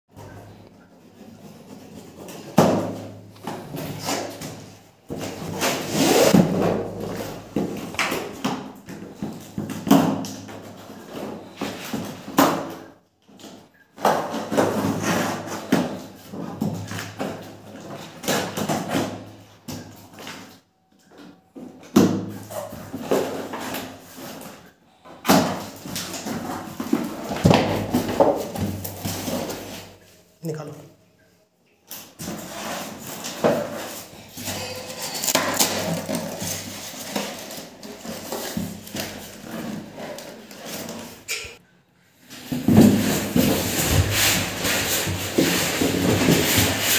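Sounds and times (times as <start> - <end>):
packing tape tearing off cardboard: 2.2 - 12.7, 32.1 - 41.4, 42.3 - 46.9.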